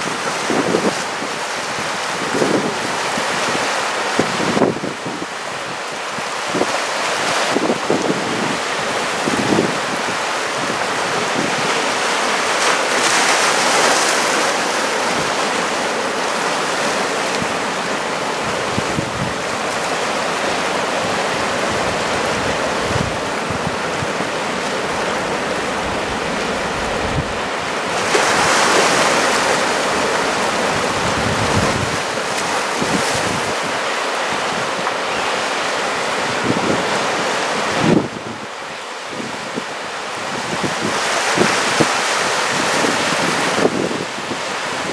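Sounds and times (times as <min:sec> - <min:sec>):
ocean surf breaking: 0:00.0 - 0:44.9
wind buffeting microphone: 0:18.4 - 0:19.7, 0:21.0 - 0:34.8.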